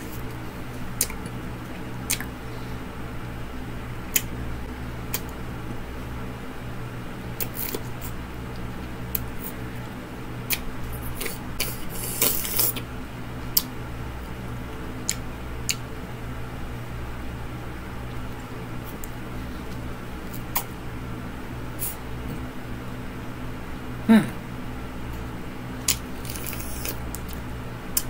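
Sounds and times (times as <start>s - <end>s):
steady low hum: 0.0s - 28.0s
mouth sucking and lip smacks: 10.5s - 12.8s, 25.8s - 27.4s.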